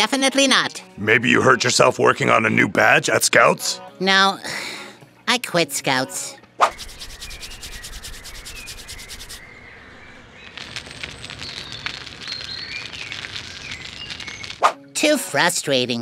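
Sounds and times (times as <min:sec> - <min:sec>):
wooden stick scraping kindling: 0:06.7 - 0:14.7
birds chirping: 0:06.8 - 0:14.6.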